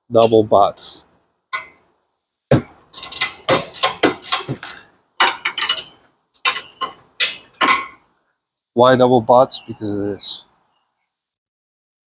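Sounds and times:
wrench clinking on bolt: 0:02.9 - 0:08.0.

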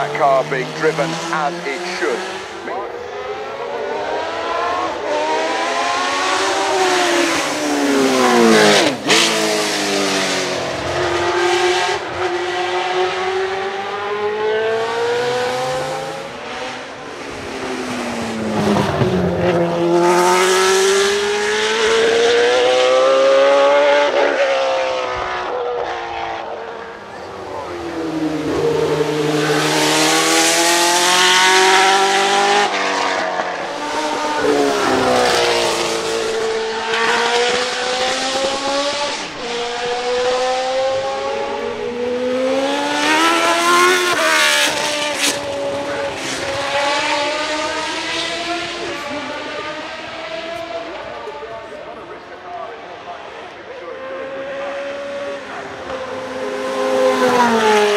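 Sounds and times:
race car engine revving hard: 0:00.0 - 0:57.9.

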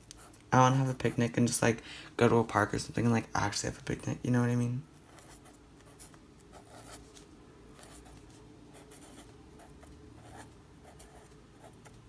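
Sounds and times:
marker scratching on paper: 0:05.1 - 0:07.2, 0:07.8 - 0:11.9.

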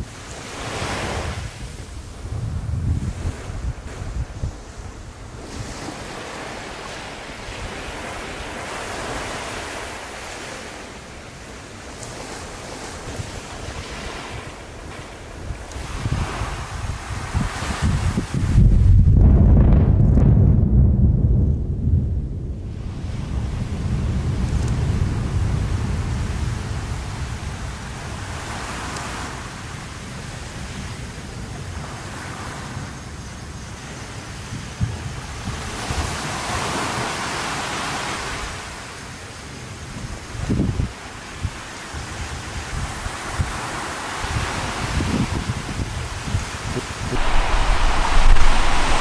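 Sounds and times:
sea waves washing in: 0:00.0 - 0:18.9, 0:22.5 - 0:34.5, 0:40.1 - 0:49.0
wind on microphone: 0:00.0 - 0:38.7, 0:39.8 - 0:49.0
volcano low rumble: 0:18.5 - 0:26.8, 0:47.1 - 0:49.0
steady hissing roar: 0:47.1 - 0:49.0.

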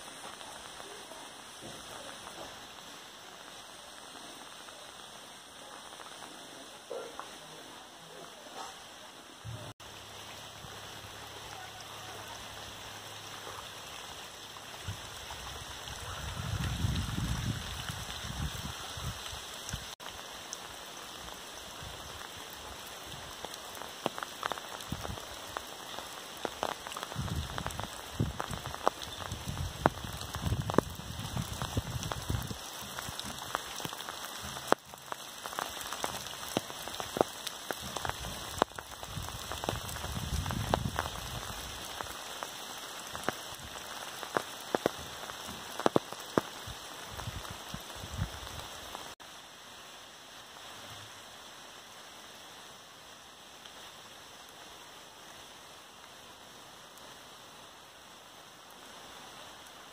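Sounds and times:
rain falling steadily: 0:00.0 - 0:59.9
raindrop splats: 0:09.5 - 0:49.2.

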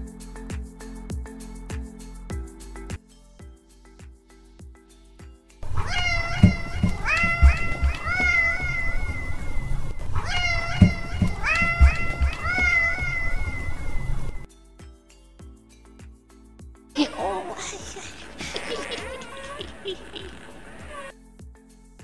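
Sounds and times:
low thumps: 0:05.6 - 0:14.4
cat meowing: 0:05.6 - 0:14.5, 0:17.5 - 0:21.1.

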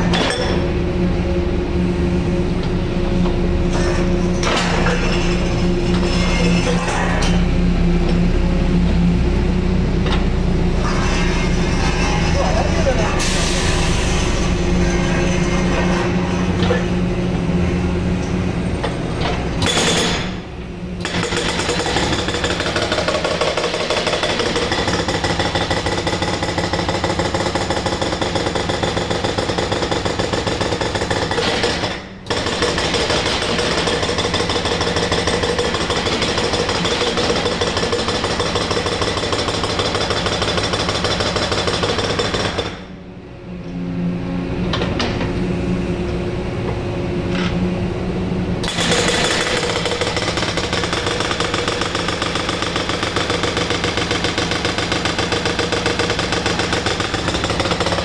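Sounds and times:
excavator engine humming: 0:00.0 - 0:13.4, 0:14.3 - 0:19.6
hydraulic breaker pounding concrete: 0:03.6 - 0:07.5, 0:18.9 - 0:43.0, 0:48.6 - 0:58.0.

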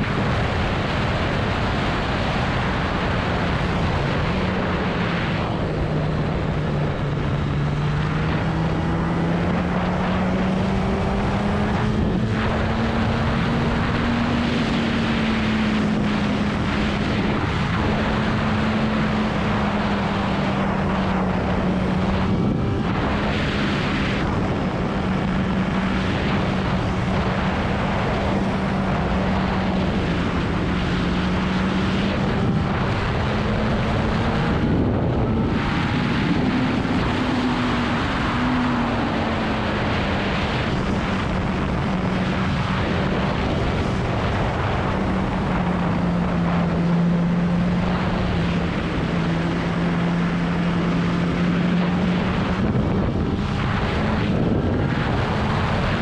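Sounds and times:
wind and road noise: 0:00.0 - 0:56.0
motorcycle engine running: 0:03.3 - 0:39.8.

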